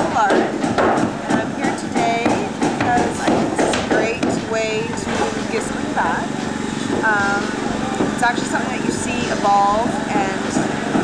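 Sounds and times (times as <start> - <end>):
woman speaking: 0.0 - 0.6, 1.3 - 6.4, 7.0 - 10.8.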